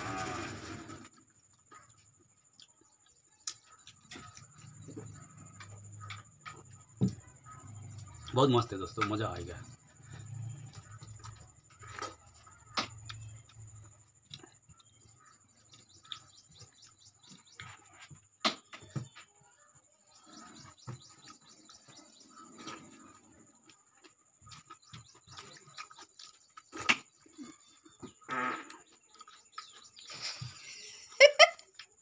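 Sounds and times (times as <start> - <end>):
chewing and lip-smacking: 9.9 - 17.9, 20.3 - 28.0.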